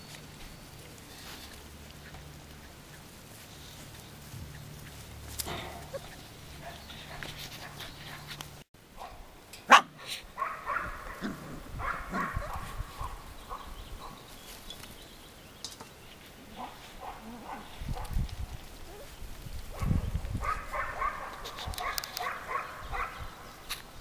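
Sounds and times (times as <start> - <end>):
puppies yipping and barking: 0.0 - 8.6, 9.7 - 14.3.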